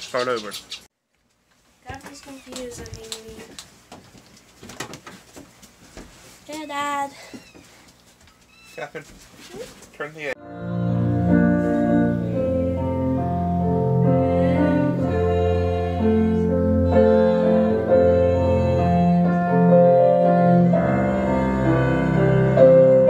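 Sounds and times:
piano playing slow chords: 10.4s - 23.0s.

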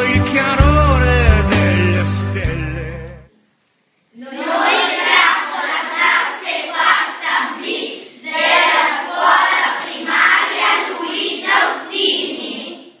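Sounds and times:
children singing together: 4.2s - 13.0s.

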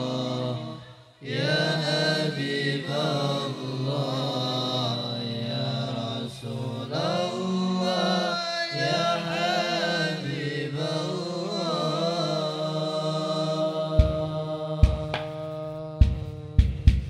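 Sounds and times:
voices chanting: 0.0s - 15.6s
drum stroke: 14.0s - 17.0s.

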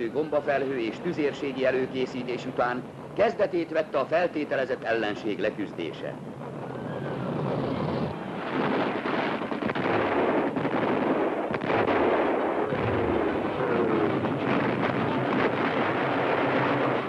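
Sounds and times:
artillery and gunfire barrage: 6.2s - 17.0s
explosions: 6.3s - 17.0s.

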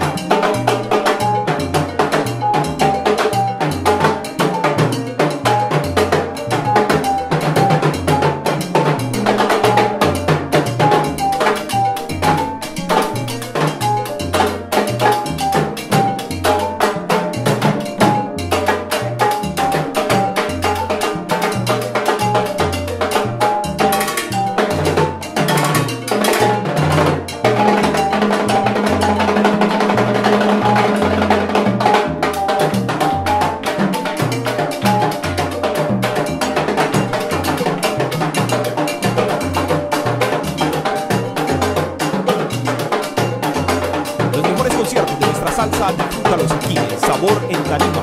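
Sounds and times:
upright bass: 0.0s - 21.2s, 44.2s - 48.0s
congas: 0.0s - 48.0s.

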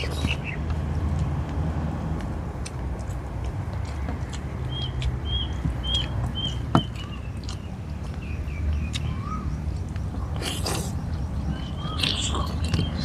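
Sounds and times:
bird chirping: 0.0s - 0.6s, 4.2s - 13.0s
outdoor ambience: 0.0s - 13.0s
eating clicks: 2.2s - 13.0s.

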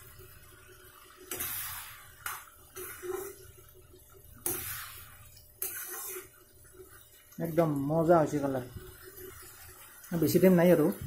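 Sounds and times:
metal spoon stirring thick curry: 5.6s - 6.3s.

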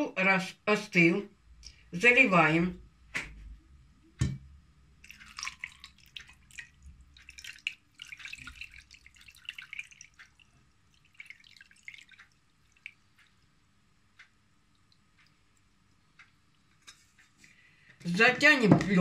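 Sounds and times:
liquid pouring and splashing: 5.0s - 13.4s
water dripping: 5.0s - 17.3s.

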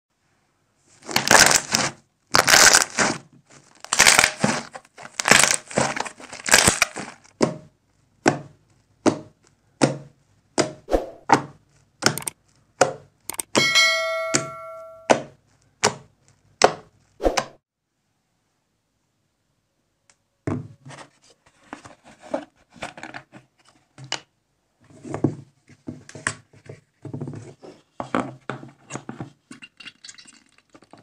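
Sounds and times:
bell chime ding: 13.6s - 15.2s.

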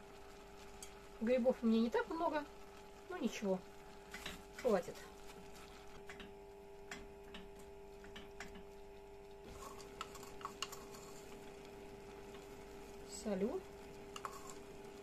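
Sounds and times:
faint steady hum: 0.0s - 15.0s
wooden spoon clicking in pot: 6.0s - 9.0s.

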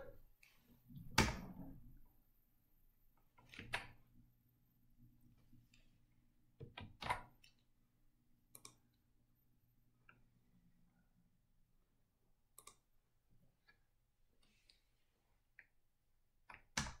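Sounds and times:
computer mouse clicks: 8.5s - 8.9s, 12.5s - 12.9s.

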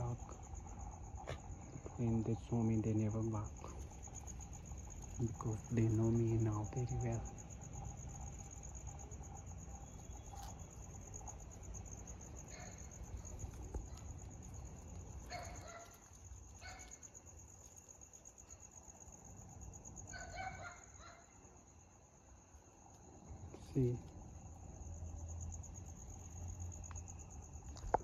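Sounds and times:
crickets chirring: 0.0s - 28.0s.

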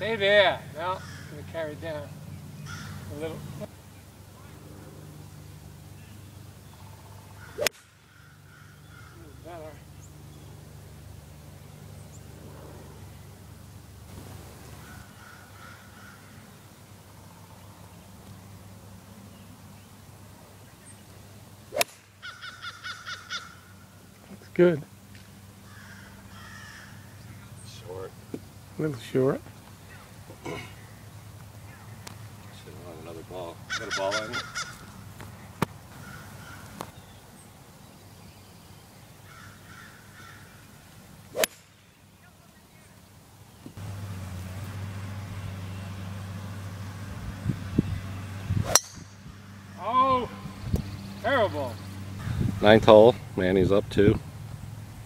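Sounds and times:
crow cawing: 0.8s - 1.5s, 2.6s - 3.2s, 6.8s - 9.5s, 14.8s - 16.6s, 22.2s - 23.8s, 25.6s - 27.2s, 33.7s - 34.9s, 36.0s - 36.8s, 39.2s - 40.6s
golf club striking ball: 7.5s - 8.2s, 21.7s - 22.4s, 41.3s - 41.8s, 48.6s - 49.5s.

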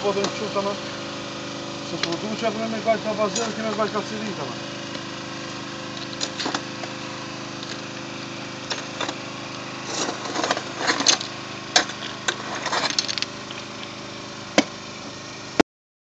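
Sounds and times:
engine-like drone: 0.0s - 15.6s
metallic clicks and scrapes: 9.8s - 13.9s.

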